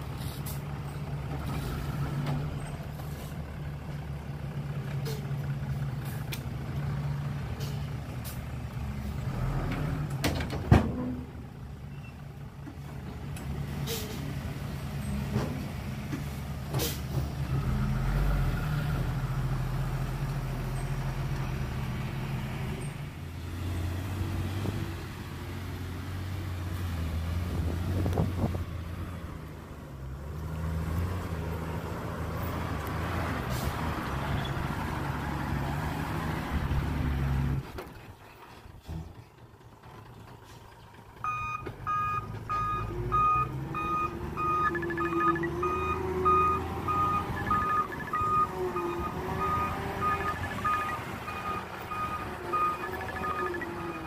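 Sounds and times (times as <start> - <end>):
diesel earthmoving machinery running: 0.0 - 54.0
engine running: 36.6 - 54.0
reversing alarm beeping: 41.2 - 54.0.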